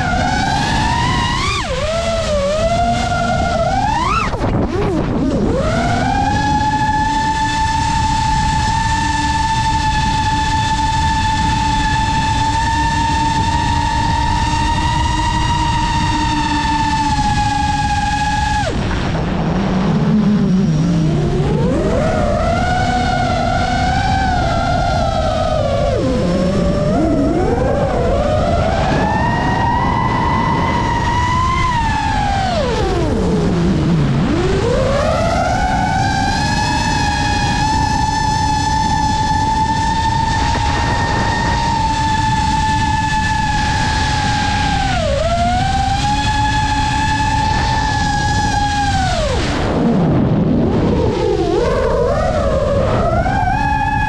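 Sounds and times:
drone motors whining: 0.0s - 54.0s
wind rushing: 0.0s - 54.0s.

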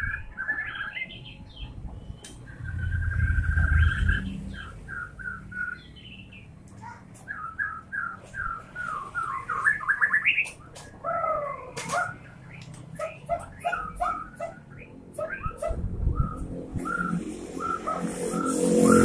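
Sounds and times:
bird singing whistled notes: 0.0s - 6.4s, 7.2s - 10.5s.

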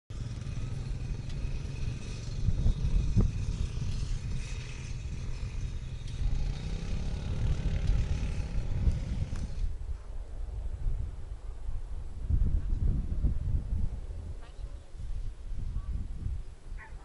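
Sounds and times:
low rumble with rattling: 0.1s - 17.0s.

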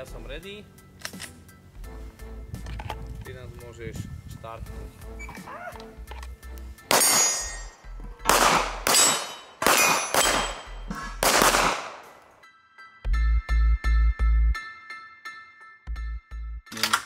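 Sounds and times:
pistol shots: 6.9s - 7.7s, 8.3s - 12.2s
steel targets ringing: 6.9s - 7.8s, 8.8s - 10.9s.

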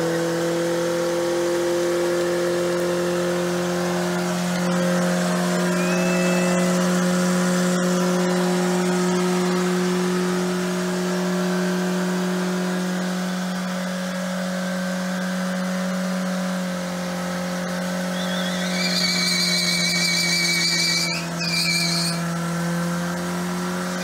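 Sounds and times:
engine revving high: 0.0s - 24.0s.

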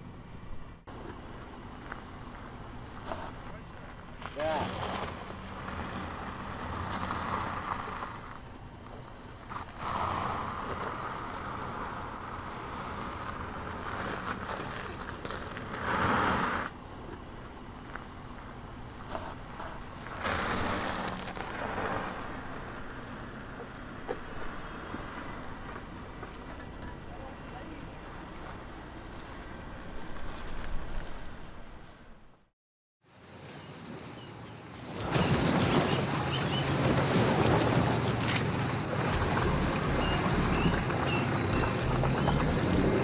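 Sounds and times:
engine running at low revs: 0.0s - 31.6s, 35.3s - 43.0s
tyres crunching over stone: 6.8s - 16.4s.

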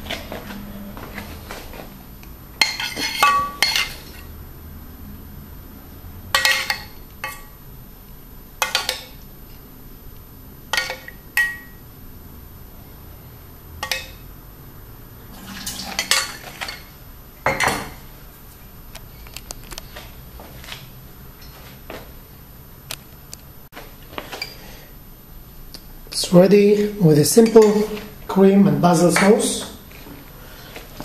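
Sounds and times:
metal spoon clinking on saucepan: 13.8s - 14.2s.

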